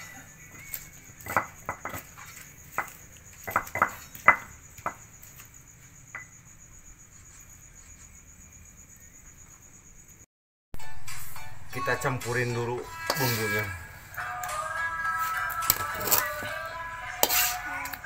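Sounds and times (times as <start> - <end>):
pestle knocking in stone mortar: 1.2 - 5.2.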